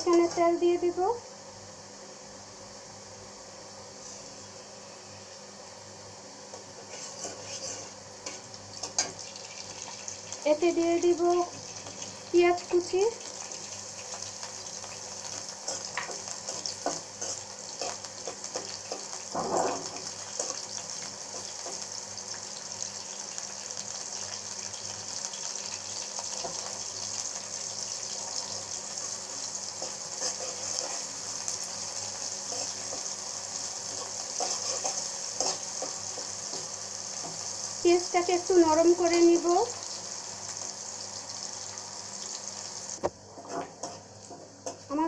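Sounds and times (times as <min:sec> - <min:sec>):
onion sizzling in hot oil: 0:00.0 - 0:01.1, 0:01.9 - 0:45.0
spatula scraping a pan: 0:06.8 - 0:09.1, 0:29.8 - 0:31.1, 0:33.9 - 0:36.7.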